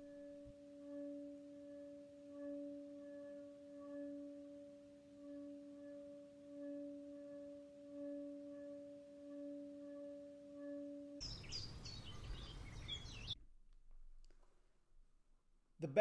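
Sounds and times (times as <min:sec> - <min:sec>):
singing pot humming tone: 0:00.0 - 0:13.4
outdoor background noise: 0:00.0 - 0:16.0
birds chirping: 0:08.0 - 0:13.4.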